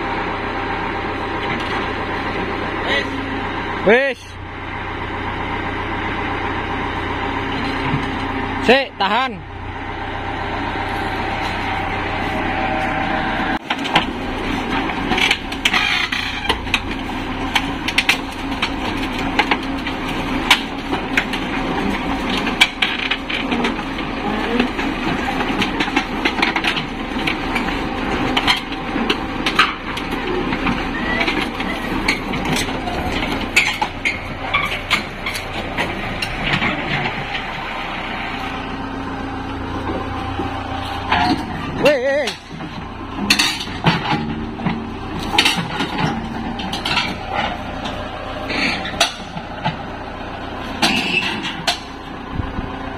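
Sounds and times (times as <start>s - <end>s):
excavator engine running: 0.0s - 52.9s
steel tracks clanking on ramps: 10.8s - 38.7s, 39.7s - 52.7s.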